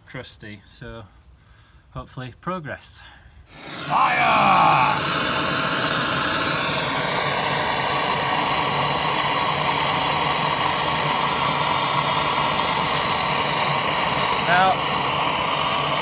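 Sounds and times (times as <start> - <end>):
gas torch hissing: 3.5 - 16.0.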